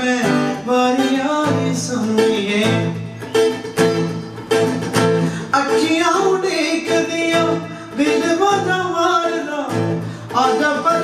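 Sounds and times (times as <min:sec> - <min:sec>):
man singing wordless line: 0:00.0 - 0:03.4, 0:05.2 - 0:11.0
acoustic guitar strumming: 0:00.0 - 0:11.0.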